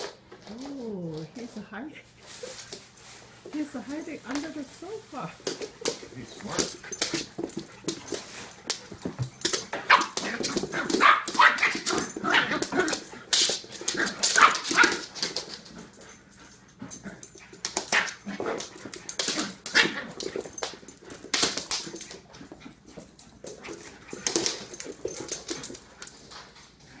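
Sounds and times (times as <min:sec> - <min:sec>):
paws clattering on hardwood floor: 0:00.0 - 0:27.0
dogs yipping and barking: 0:07.0 - 0:26.8.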